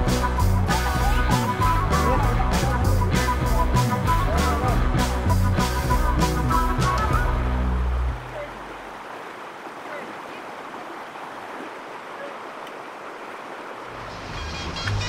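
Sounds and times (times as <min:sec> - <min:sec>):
background music: 0:00.0 - 0:08.4, 0:14.0 - 0:15.0
fast-flowing river rushing: 0:00.2 - 0:15.0.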